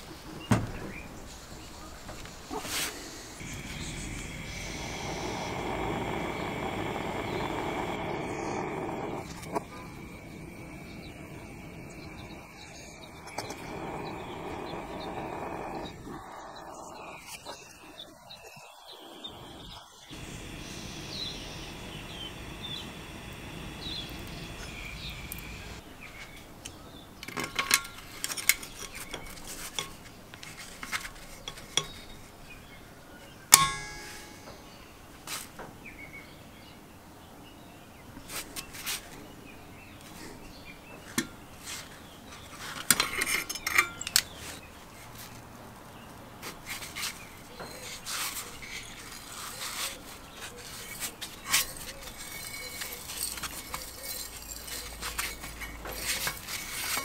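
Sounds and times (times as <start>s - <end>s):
gas torch hissing: 1.3s - 25.8s
sharp metal clang: 33.5s - 34.6s
metal clinks and clanks: 51.4s - 57.0s.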